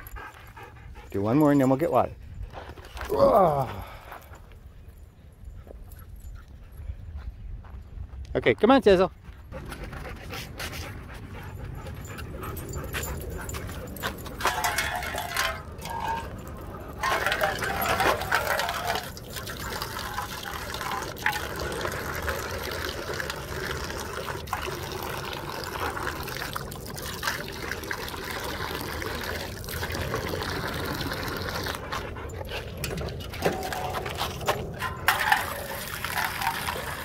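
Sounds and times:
water pouring into a metal bowl: 14.5s - 31.9s, 33.2s - 37.0s.

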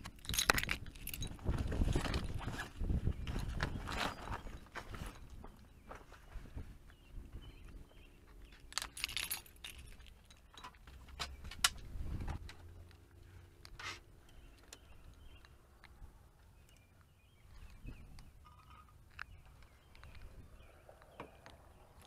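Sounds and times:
keys jingling: 0.0s - 2.4s, 8.6s - 11.2s
clicks of things handled: 8.4s - 16.0s.

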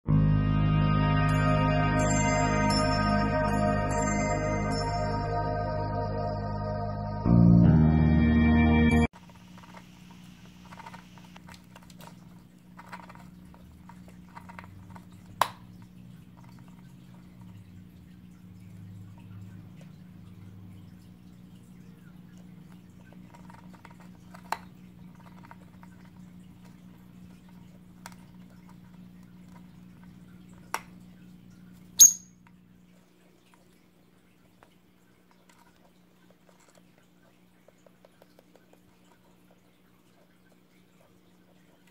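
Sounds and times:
faint steady hum: 9.2s - 41.9s
lovebird chirp: 32.0s - 32.3s.

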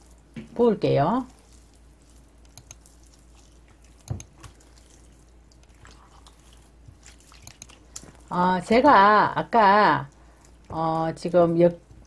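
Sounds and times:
paste squelching: 0.0s - 8.4s.

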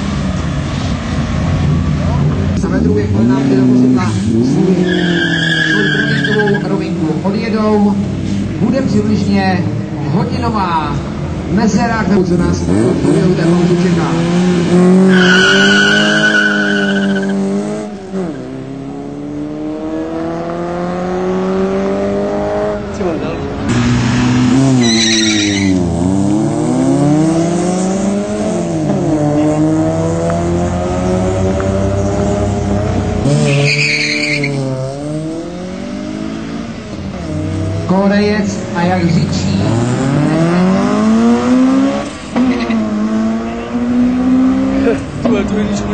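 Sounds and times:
car engine revving: 0.0s - 45.9s
tyres squealing: 4.7s - 6.8s, 15.0s - 17.3s, 24.8s - 25.8s, 33.4s - 34.6s.

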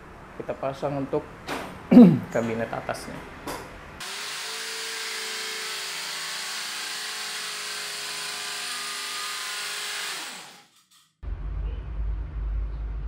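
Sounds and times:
electric drill motor whining: 4.0s - 10.7s.

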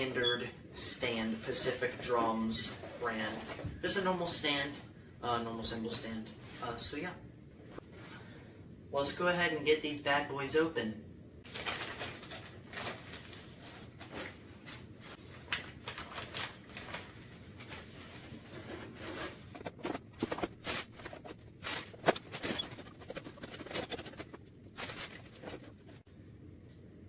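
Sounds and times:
plastic packaging crinkling: 11.5s - 13.4s, 15.4s - 26.0s
cardboard rustling and scraping: 11.5s - 26.1s.

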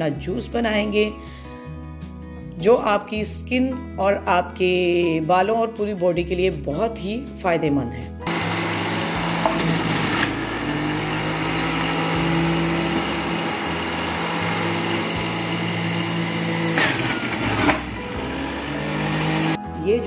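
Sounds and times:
juice extractor motor running: 8.3s - 19.6s.

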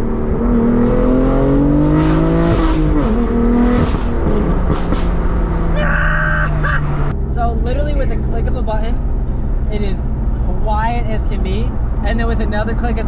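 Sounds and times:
car engine accelerating: 0.0s - 13.0s
exhaust cracks: 1.8s - 10.4s.

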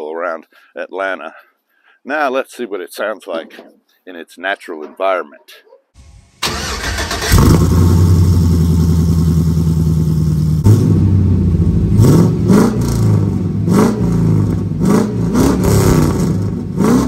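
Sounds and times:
truck engine idling and revving: 6.0s - 17.0s.

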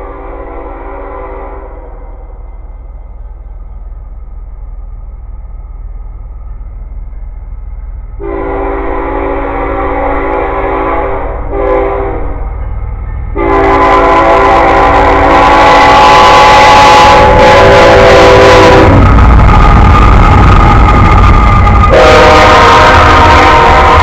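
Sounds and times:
locomotive horn blasts: 0.0s - 2.0s, 8.2s - 12.5s, 13.3s - 19.1s, 21.8s - 24.0s
diesel engine rumble: 17.1s - 24.0s.

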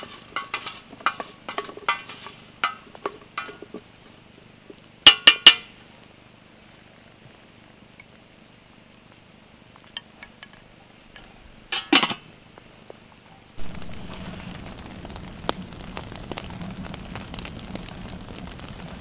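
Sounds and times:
wood fire crackling in stove: 0.0s - 11.2s, 13.6s - 19.0s
steady rushing noise: 13.6s - 19.0s.

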